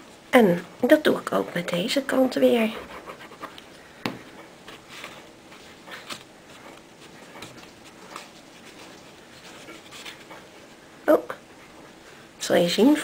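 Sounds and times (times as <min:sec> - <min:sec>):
soft taps and rustles: 0:03.4 - 0:10.5.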